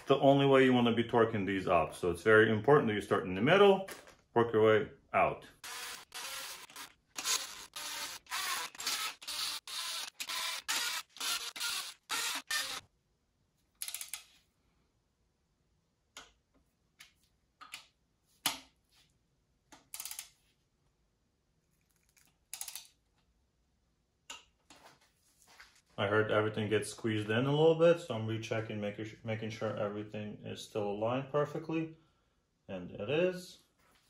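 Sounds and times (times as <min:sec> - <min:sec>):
cordless drill bursts: 0:05.6 - 0:12.8
torque wrench clicks and ratcheting: 0:05.6 - 0:12.8.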